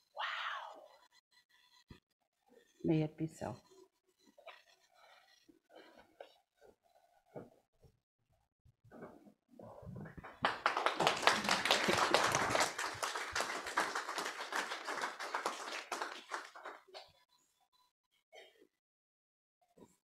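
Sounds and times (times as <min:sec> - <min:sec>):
congregation applauding: 0:10.1 - 0:16.9.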